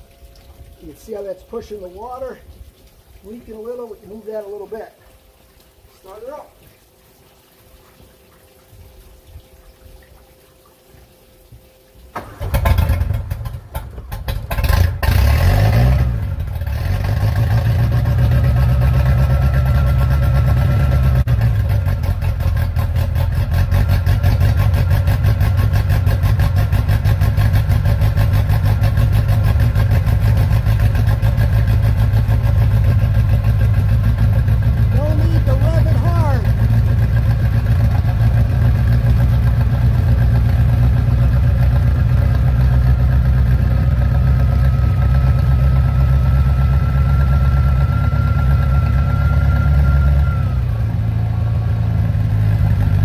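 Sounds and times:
boat engine cranking and revving: 12.1s - 53.0s.

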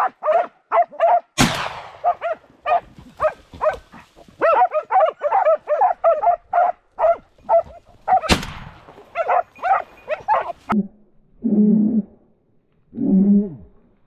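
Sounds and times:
dog barking rapidly: 0.0s - 1.3s, 2.0s - 8.4s, 9.1s - 10.7s
sharp bang: 1.4s - 2.1s.

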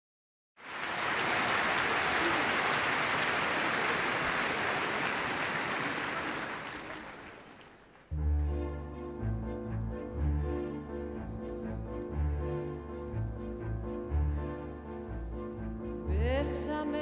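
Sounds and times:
audience applauding: 0.6s - 8.1s
orchestra low strings: 0.7s - 17.0s.

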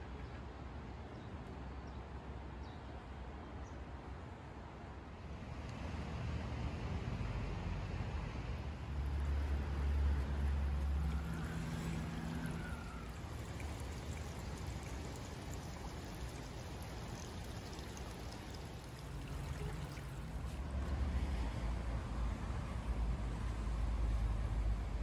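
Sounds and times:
water trickling over concrete steps: 8.8s - 21.4s.

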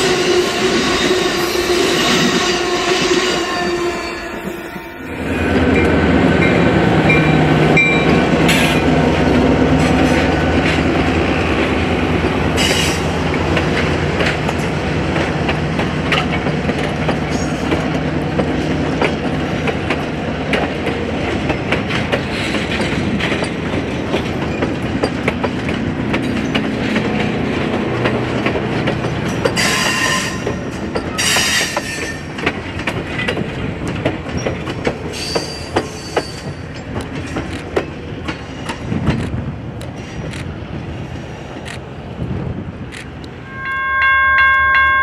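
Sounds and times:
train wheels clicking over rail joints: 5.6s - 41.9s
train wheels squealing: 12.6s - 13.1s, 29.3s - 32.3s, 34.3s - 36.9s.

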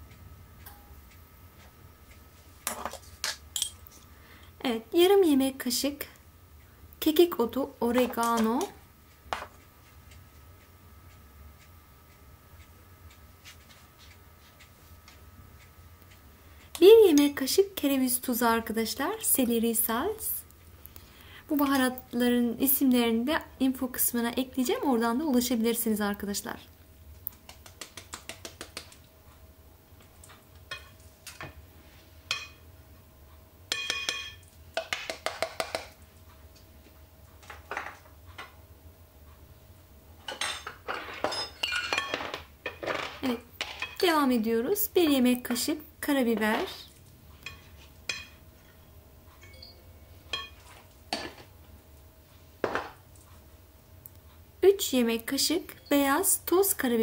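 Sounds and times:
metal spoon clinking on glass dish: 33.7s - 34.4s.

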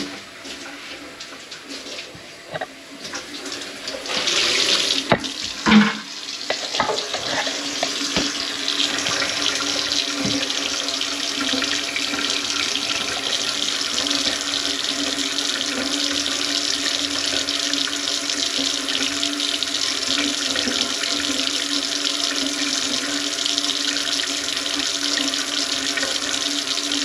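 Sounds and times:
water running from tap: 0.0s - 27.0s
pipe knocks: 5.1s - 6.1s.

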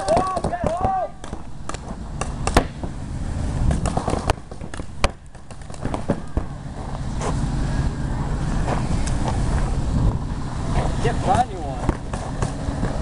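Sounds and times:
wind rumble: 0.0s - 13.0s.

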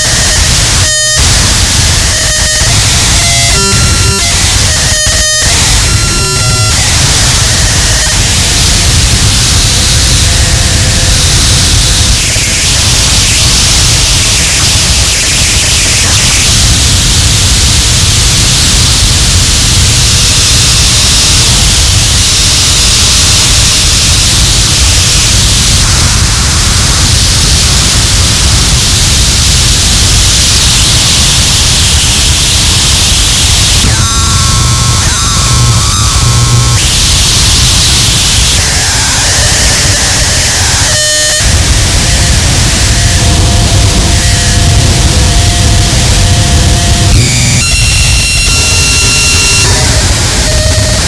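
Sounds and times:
distorted static and hiss: 0.0s - 51.0s
feedback tones: 0.0s - 51.0s
heavy low rumble: 2.7s - 30.3s, 41.5s - 51.0s.

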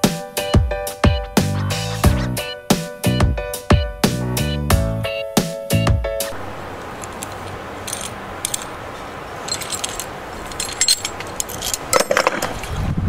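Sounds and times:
metal tool clinking: 6.9s - 8.8s, 9.4s - 12.5s.

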